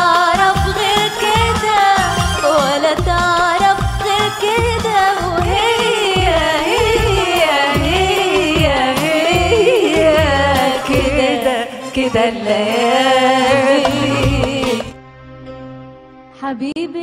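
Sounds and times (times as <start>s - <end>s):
person singing: 0.0s - 15.0s
low drum beats: 3.0s - 11.4s, 13.5s - 15.0s.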